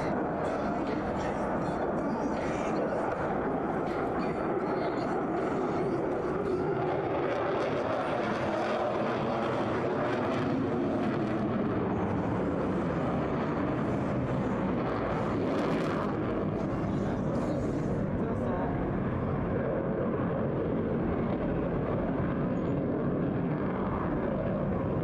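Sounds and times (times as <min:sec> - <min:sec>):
jet engine noise: 0:00.0 - 0:25.0.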